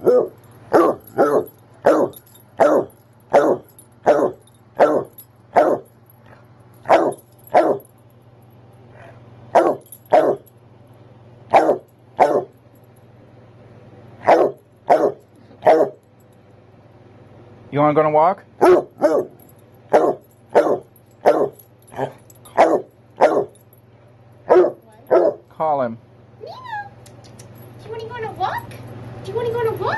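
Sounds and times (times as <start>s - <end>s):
dog barking: 0.0s - 5.9s, 6.8s - 7.8s, 9.5s - 10.4s, 11.5s - 12.5s, 14.2s - 16.0s, 18.6s - 23.6s, 24.5s - 25.5s.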